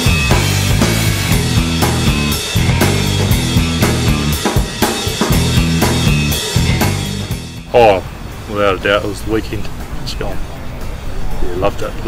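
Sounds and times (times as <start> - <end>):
bass line: 0.0 - 8.2
drum kit beat: 0.0 - 8.4.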